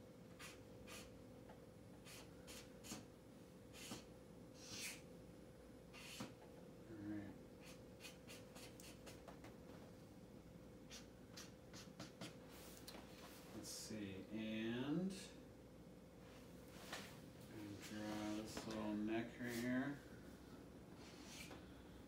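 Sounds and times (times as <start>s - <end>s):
marker scratching on paper: 0.3s - 1.1s, 2.0s - 3.1s, 3.7s - 5.0s, 5.9s - 6.4s, 7.6s - 9.4s, 10.9s - 12.4s.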